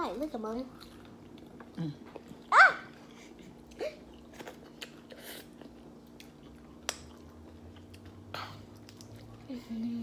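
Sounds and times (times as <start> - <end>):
wet chewing and lip smacks: 3.5 - 9.4.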